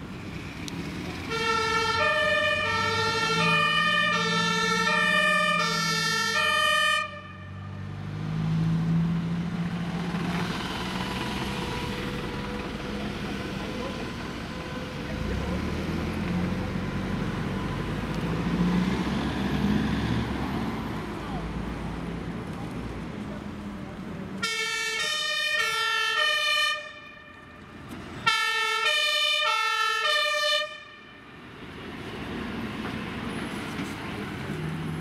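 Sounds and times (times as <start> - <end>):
city traffic: 0.0 - 35.0
trucks driving past: 0.0 - 35.0
two-tone siren: 1.3 - 7.7, 24.4 - 27.6, 28.2 - 31.2.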